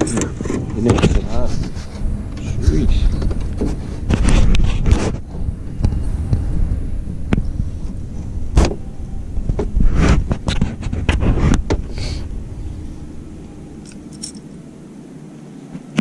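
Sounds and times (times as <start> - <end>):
knocks and rattles in boat: 0.0 - 2.4
low wind rumble on microphone: 0.0 - 16.0.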